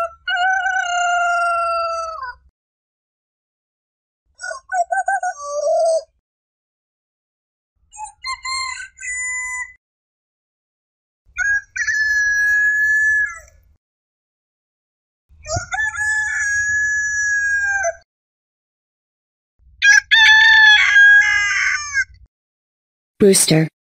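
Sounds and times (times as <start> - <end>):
rooster crowing: 0.0 - 2.4, 15.4 - 18.0, 19.8 - 22.1.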